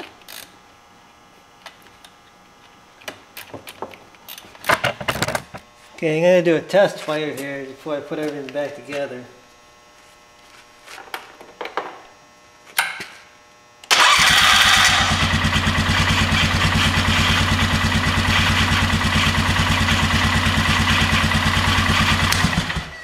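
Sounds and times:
electric starter cranking: 13.8 - 23.0
engine idling: 13.9 - 23.0.

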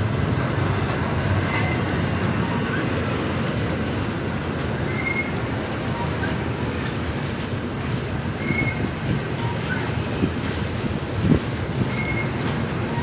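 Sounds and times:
train wheels rumbling on rail: 0.0 - 13.0
high wheel squeals: 4.9 - 6.3, 8.4 - 10.1, 11.9 - 13.0.

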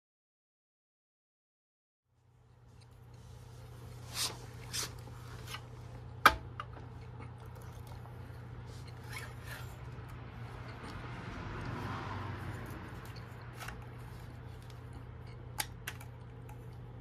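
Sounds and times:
low steady hum: 2.1 - 17.0.

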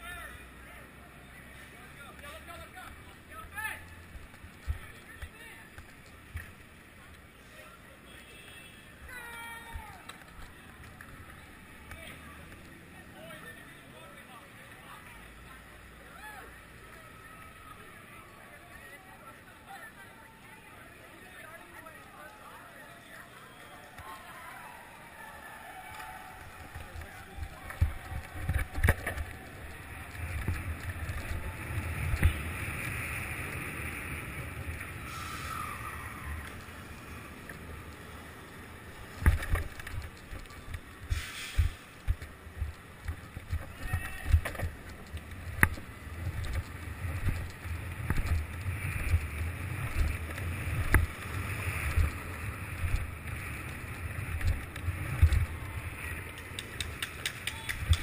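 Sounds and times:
skateboard wheels rolling on asphalt: 0.0 - 58.0
sharp clicks: 54.3 - 58.0.

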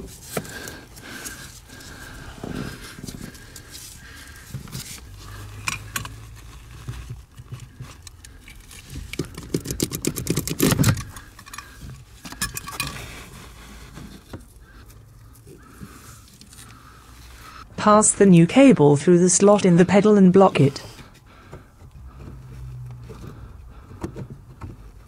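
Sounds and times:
cable handling clicks and scrapes: 0.0 - 17.6, 20.8 - 25.0
fast rattling clicks: 9.1 - 11.7.

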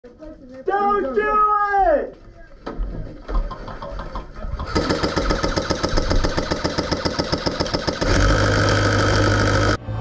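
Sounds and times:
airsoft minigun motor whirring: 4.6 - 9.8.

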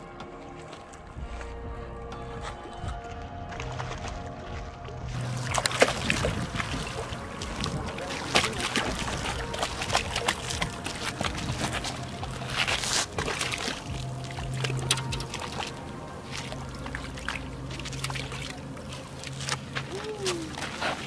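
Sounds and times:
fish splashing at water surface: 5.2 - 21.0.

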